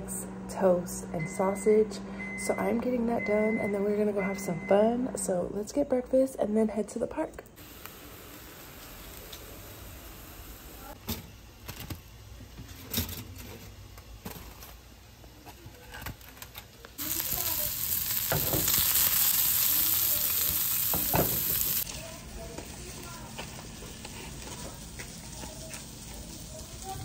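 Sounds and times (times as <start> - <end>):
sausages sizzling in frying pan: 7.6 - 11.0, 16.9 - 27.0.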